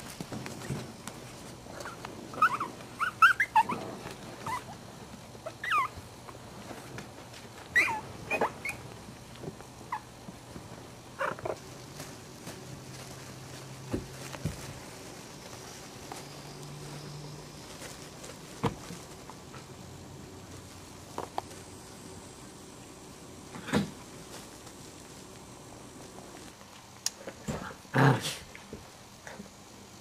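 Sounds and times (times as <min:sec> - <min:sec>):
puppies squeaking and yipping: 0:01.8 - 0:04.7, 0:05.4 - 0:06.0, 0:07.7 - 0:08.9, 0:11.2 - 0:11.6.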